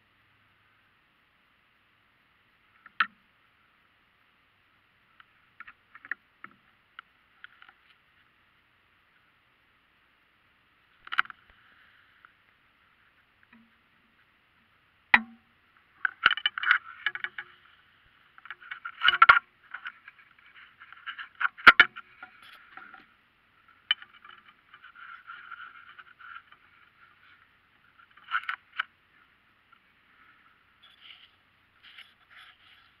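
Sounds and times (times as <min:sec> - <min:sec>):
camera handling scrapes and rubs: 0:30.8 - 0:33.0.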